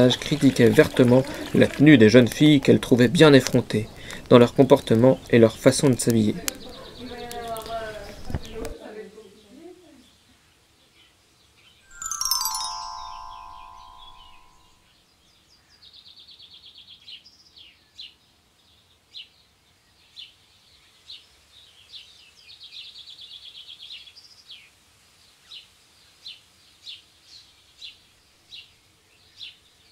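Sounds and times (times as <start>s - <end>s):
bird trills: 11.9s - 14.7s
bird chirping: 11.9s - 14.8s.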